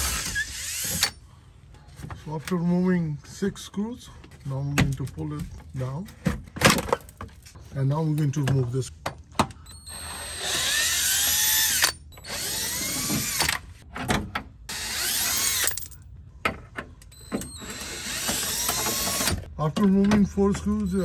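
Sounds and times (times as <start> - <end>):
cordless drill motor whine: 9.7 - 13.6, 17.1 - 19.4.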